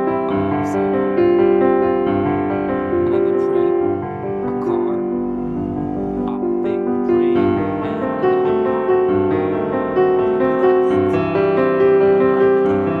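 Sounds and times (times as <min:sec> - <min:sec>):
held instrumental notes: 0:00.0 - 0:13.0
slow piano melody: 0:00.0 - 0:13.0.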